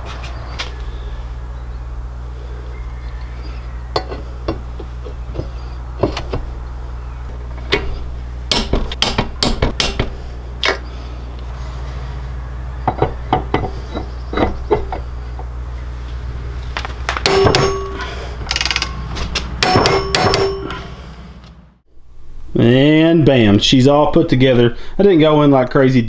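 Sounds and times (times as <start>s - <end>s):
low hum: 0.0s - 22.7s
metal clicks of engine parts: 17.3s - 20.8s.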